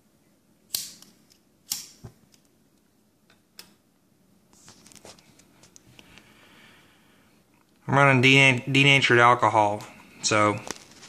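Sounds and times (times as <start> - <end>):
lighter clicks: 0.7 - 2.0.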